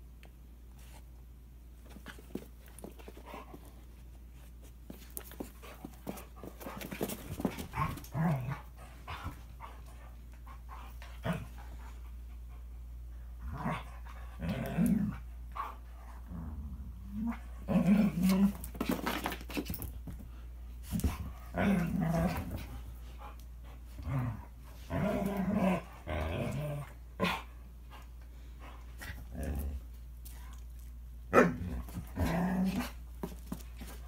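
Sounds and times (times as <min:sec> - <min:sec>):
dogs scuffling and scratching: 0:01.8 - 0:08.5, 0:18.2 - 0:20.2, 0:31.8 - 0:34.0.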